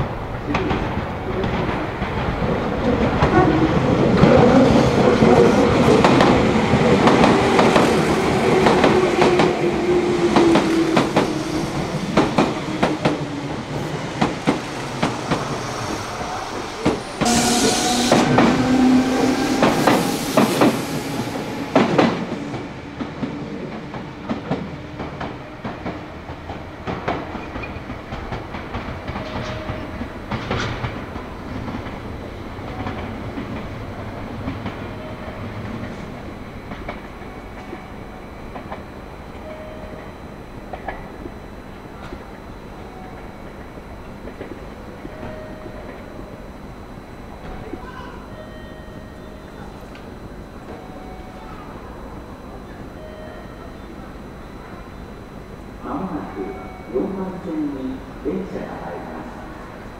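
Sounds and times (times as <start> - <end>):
electric train running: 0.0 - 59.9.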